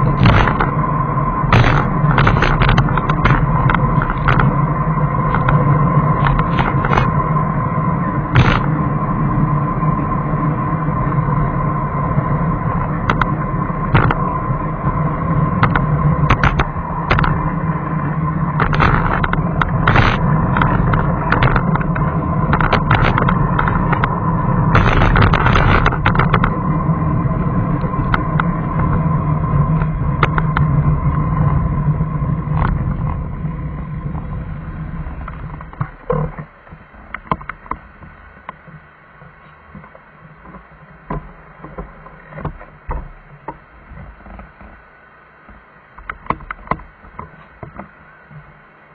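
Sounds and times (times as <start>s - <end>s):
clicks and rattles: 0.0s - 0.8s, 1.5s - 4.6s, 5.2s - 7.2s, 8.3s - 8.7s, 13.0s - 14.3s, 15.5s - 17.5s, 18.5s - 26.6s
vehicle engine drone with whine: 0.0s - 48.9s.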